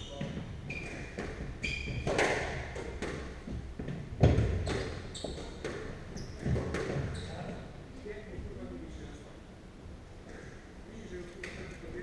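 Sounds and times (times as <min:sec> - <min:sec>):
sneakers squeaking on wooden floor: 0:00.0 - 0:07.6.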